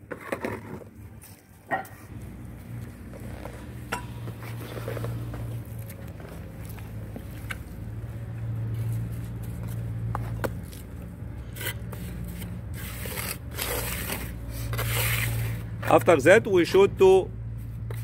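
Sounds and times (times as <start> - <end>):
low hum: 2.0 - 15.8
trowel scraping mortar: 10.4 - 16.1.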